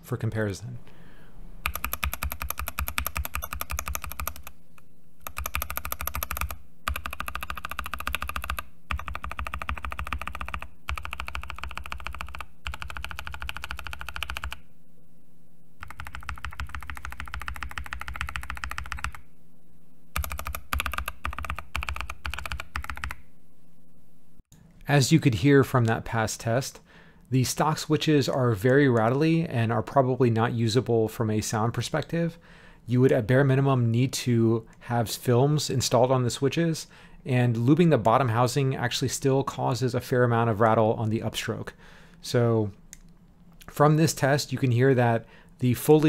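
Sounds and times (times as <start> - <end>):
fast mechanical keyboard typing: 1.6 - 4.6, 5.2 - 14.6, 15.8 - 19.2, 20.2 - 23.2.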